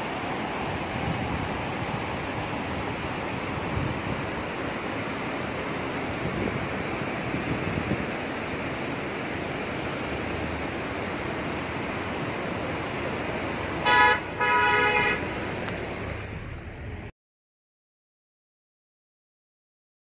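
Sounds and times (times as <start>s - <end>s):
river rushing: 0.0s - 17.1s
vehicle horn honking: 13.8s - 15.3s.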